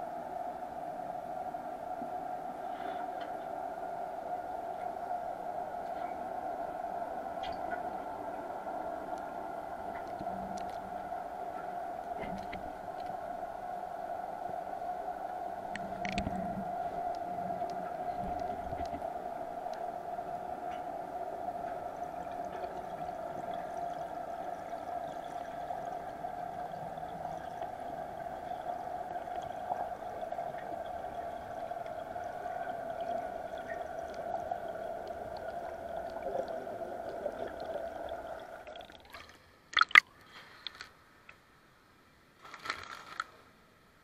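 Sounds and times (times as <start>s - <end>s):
underwater hum: 0.0s - 41.9s.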